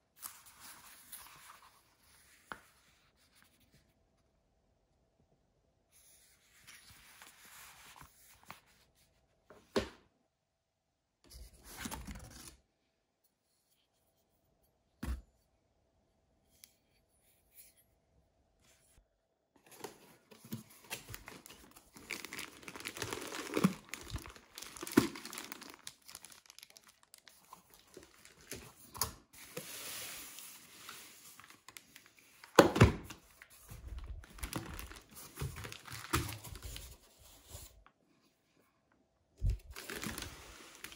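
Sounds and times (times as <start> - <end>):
cardboard and plastic rustling: 19.6 - 37.9, 39.4 - 40.9.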